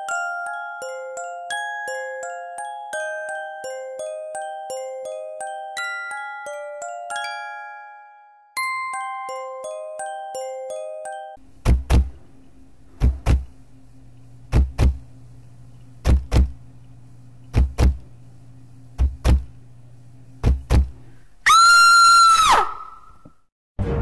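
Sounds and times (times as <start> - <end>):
heartbeat thumps: 11.6 - 12.2, 13.0 - 13.5, 14.5 - 15.1, 16.0 - 16.6, 17.5 - 18.0, 19.0 - 19.5, 20.4 - 21.0.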